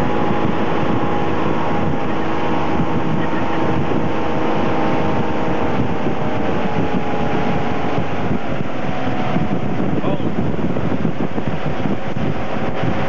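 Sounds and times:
motorboat engine running: 0:00.0 - 0:13.0
wind buffeting microphone: 0:00.0 - 0:13.0.

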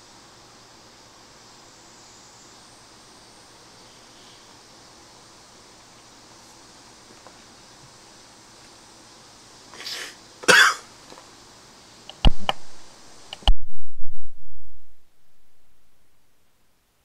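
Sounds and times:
background hiss: 0:00.0 - 0:17.0
person coughing: 0:10.5 - 0:10.9.

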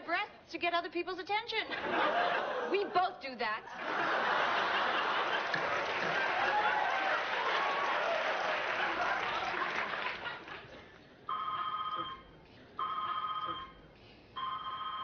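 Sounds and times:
audience laughter: 0:01.7 - 0:03.1, 0:03.7 - 0:11.0
electronic telephone ringing: 0:11.3 - 0:13.8, 0:14.4 - 0:15.0.

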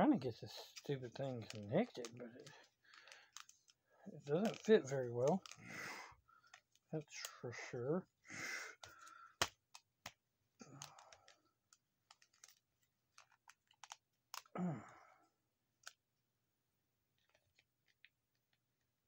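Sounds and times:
plastic parts clicking and tapping: 0:00.7 - 0:07.3, 0:08.8 - 0:14.6, 0:15.7 - 0:16.0, 0:17.2 - 0:18.6.

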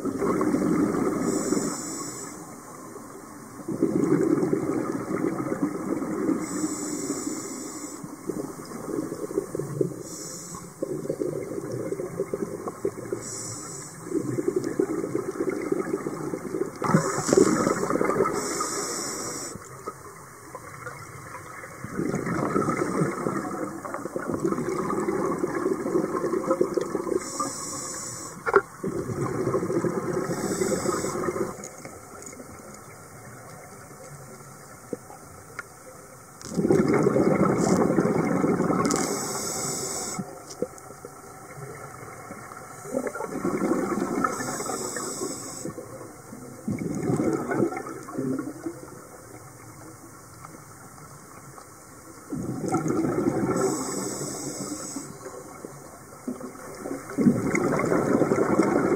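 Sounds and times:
exhaled bubbles underwater: 0:00.0 - 0:58.9
diver breathing through regulator: 0:01.2 - 0:02.4, 0:06.4 - 0:08.1, 0:10.0 - 0:10.8, 0:13.2 - 0:14.1, 0:16.8 - 0:19.7, 0:27.2 - 0:28.5, 0:30.2 - 0:31.6, 0:38.9 - 0:40.3, 0:44.2 - 0:45.8, 0:53.5 - 0:55.2.

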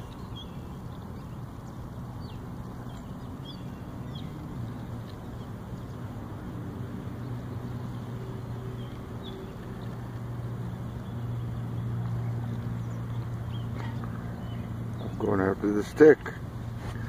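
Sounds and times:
engine drone: 0:00.0 - 0:17.0.

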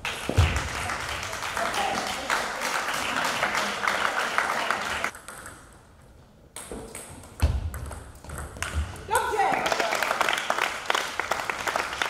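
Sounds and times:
people clapping: 0:00.0 - 0:05.2, 0:08.6 - 0:12.0
voices in a hall: 0:00.4 - 0:05.2.

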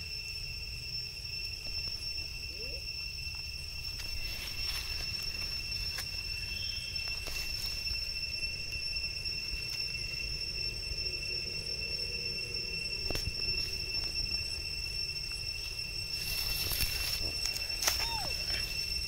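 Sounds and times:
high-pitched insect drone: 0:00.0 - 0:19.0
crackles of dry leaves: 0:01.8 - 0:10.2, 0:13.0 - 0:19.0.

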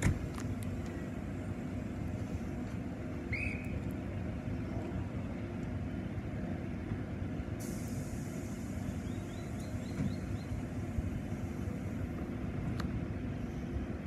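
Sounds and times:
electric train humming: 0:00.0 - 0:14.0
air hissing: 0:07.6 - 0:12.0.

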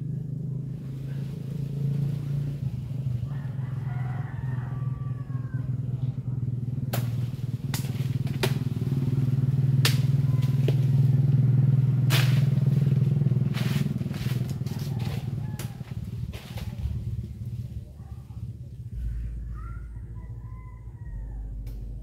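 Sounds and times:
low engine-like hum: 0:00.0 - 0:22.0
branches cracking and snapping: 0:06.9 - 0:17.5.

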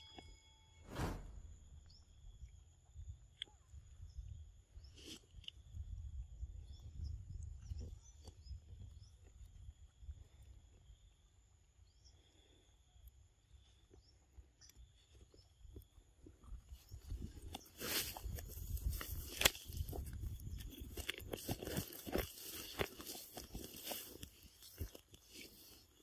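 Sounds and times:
wind rumble on microphone: 0:00.9 - 0:10.4, 0:16.4 - 0:22.3.

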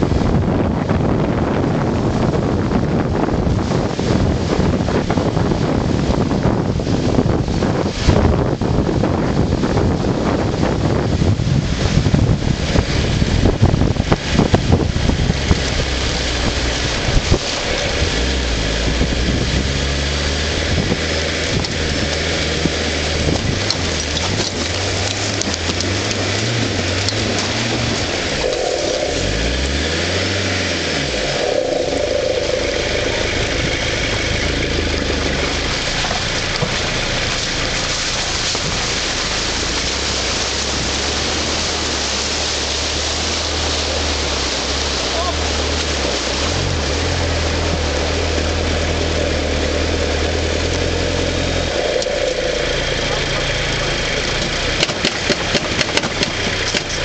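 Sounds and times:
car engine under load: 0:00.0 - 0:57.0
wind and tyre hiss: 0:00.0 - 0:57.0
wind buffeting microphone: 0:00.0 - 0:57.0.

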